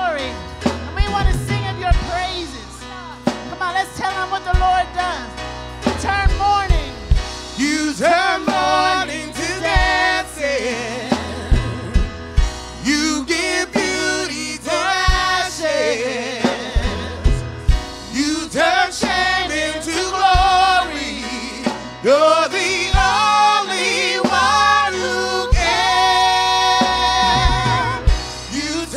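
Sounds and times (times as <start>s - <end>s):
keyboard: 0.0s - 28.9s
drum kit kick beat: 0.2s - 2.6s, 5.9s - 10.5s, 11.1s - 28.9s
man singing: 6.0s - 28.9s.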